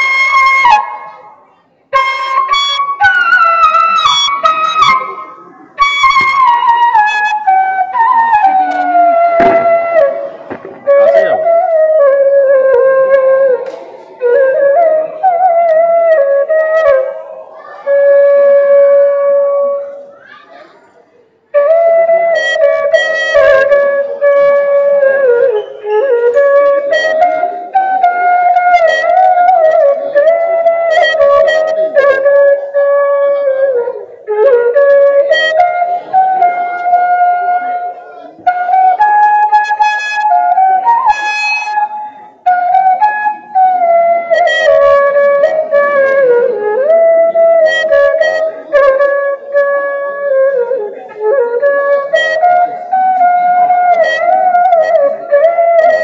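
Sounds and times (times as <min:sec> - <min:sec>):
flute melody through loudspeaker: 0:00.0 - 0:20.6, 0:21.4 - 0:56.0.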